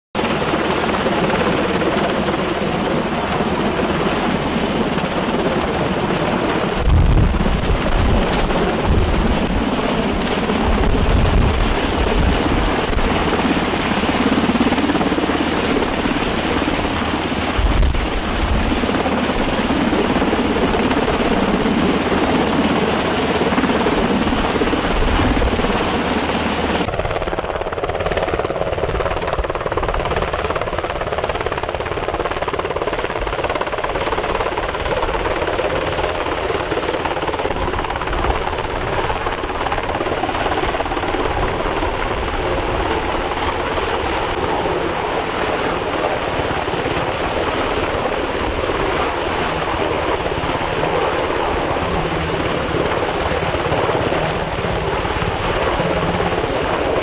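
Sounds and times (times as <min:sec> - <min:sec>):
helicopter hovering: 0:00.2 - 0:57.0
deep gusty rumbles: 0:00.6 - 0:30.7.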